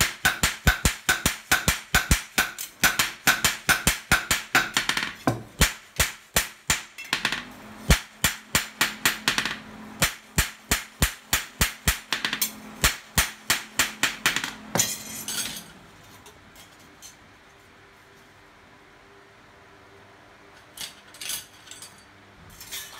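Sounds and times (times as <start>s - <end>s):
hammers striking steel blade: 0.0s - 15.6s.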